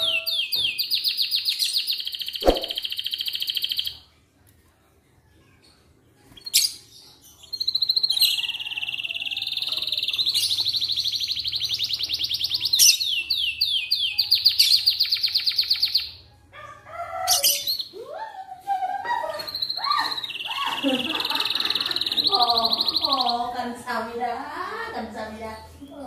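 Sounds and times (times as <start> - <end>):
canary singing trills: 0.0 - 4.0, 6.4 - 18.0, 18.9 - 24.0.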